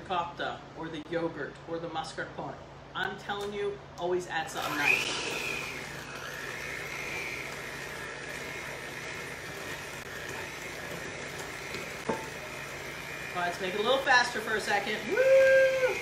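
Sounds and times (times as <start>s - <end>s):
electric hand mixer whining: 4.5s - 16.0s.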